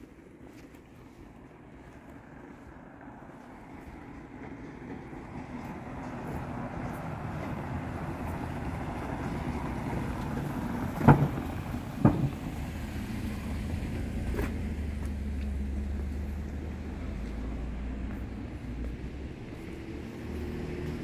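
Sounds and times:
car engine and tyre rumble: 0.0s - 21.0s
sharp knocks: 11.0s - 12.7s.

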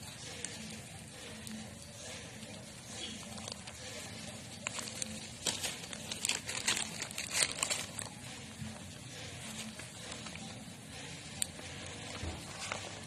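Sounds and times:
paper bag crinkling: 2.9s - 8.3s.

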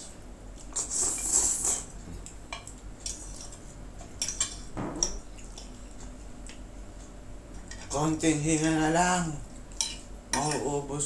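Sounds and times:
forks clinking on baking dish: 9.7s - 10.7s.

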